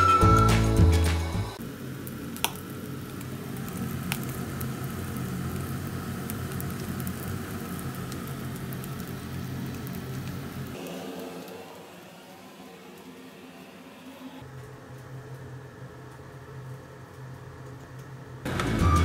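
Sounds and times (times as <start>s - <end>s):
meat sizzling on a brazier: 1.6s - 12.0s
extraction blower hum: 10.8s - 14.4s.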